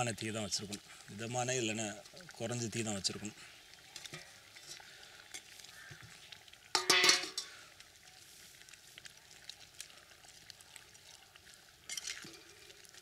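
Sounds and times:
crackly simmering: 0.0 - 13.0
metal ladle stirring in clay pot: 3.9 - 6.1, 6.7 - 7.6
ladle clatter: 4.0 - 4.8, 6.7 - 7.6.

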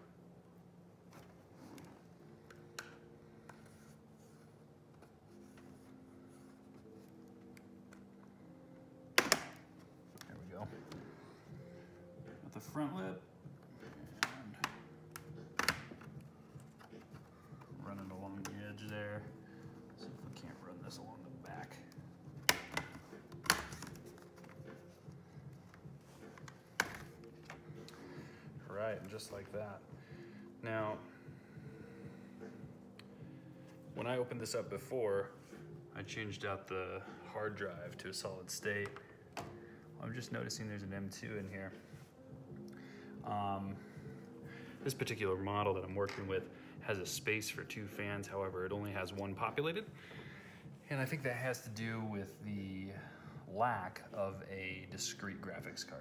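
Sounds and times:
plastic clips popping loose: 9.2 - 10.3, 14.1 - 17.0, 22.4 - 24.1.

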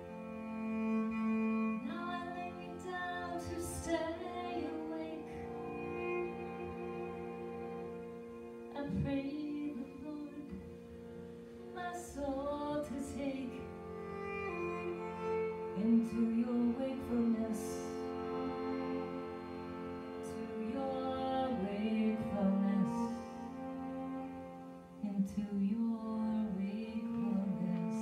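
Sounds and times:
bowed cello melody: 0.0 - 28.0
harmonium drone: 0.0 - 28.0
woman singing: 1.8 - 7.2, 8.7 - 10.7, 11.7 - 19.2, 20.2 - 23.7, 25.0 - 28.0.

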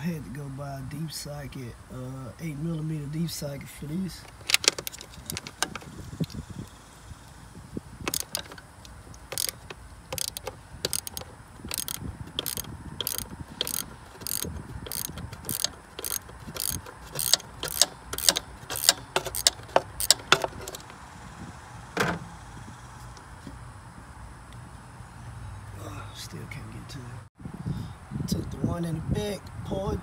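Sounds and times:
ratchet wrench clicking: 4.2 - 6.4, 8.0 - 20.8
dull clunk: 22.0 - 22.3.

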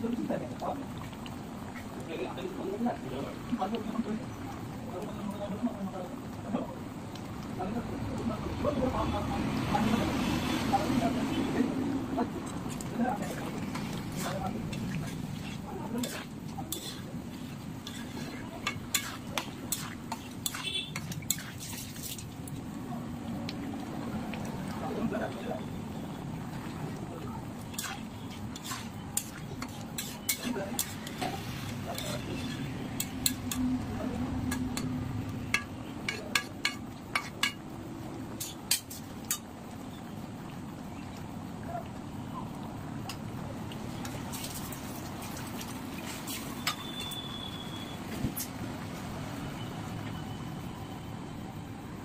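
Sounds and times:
metal spatula scraping a pan: 13.2 - 22.3, 27.7 - 33.6, 35.5 - 37.6
spatula clinking against pan: 17.8 - 21.6, 27.7 - 31.2, 35.5 - 37.6.

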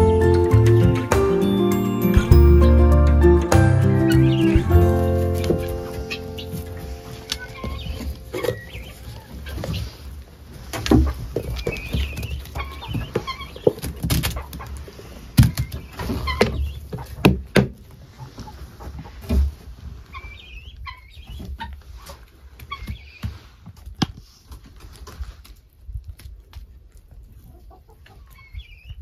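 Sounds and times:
hens clucking: 3.9 - 23.4, 27.0 - 29.0
rustling: 4.1 - 17.2, 17.8 - 27.5.

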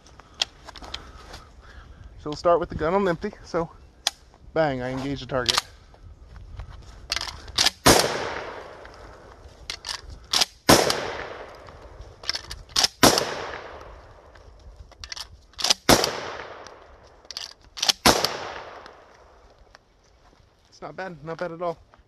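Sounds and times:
shotgun shots echoing: 7.6 - 9.0, 10.3 - 12.0, 12.8 - 14.3, 15.6 - 17.0, 17.8 - 19.3.

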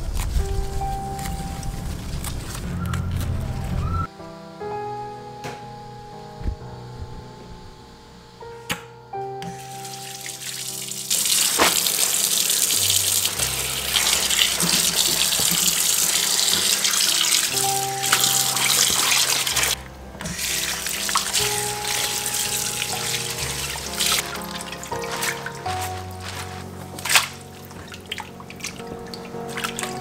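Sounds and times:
soft background music: 0.0 - 30.0
greens rinsed under water: 9.6 - 30.0.

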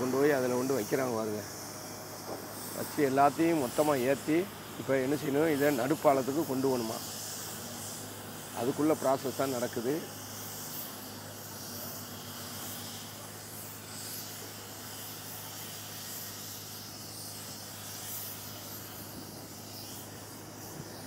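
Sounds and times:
outdoor hiss: 0.0 - 21.0.

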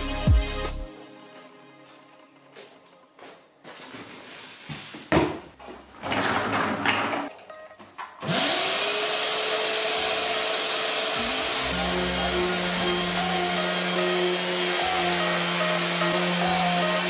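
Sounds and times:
shop vacuum running: 8.2 - 17.0.

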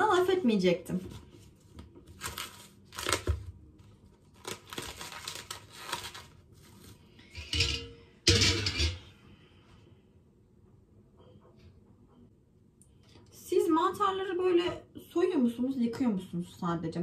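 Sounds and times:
mushrooms tearing and crinkling: 2.1 - 7.0.

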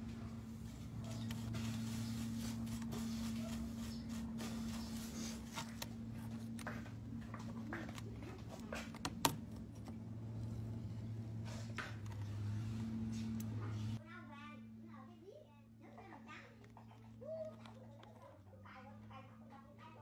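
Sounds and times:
steady low hum: 0.0 - 20.0
brush scrubbing: 0.5 - 6.6.

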